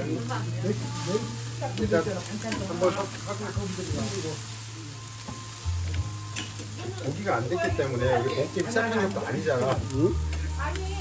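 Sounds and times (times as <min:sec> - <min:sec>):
meat sizzling on a grill: 0:00.0 - 0:11.0
faint voices talking: 0:06.7 - 0:11.0.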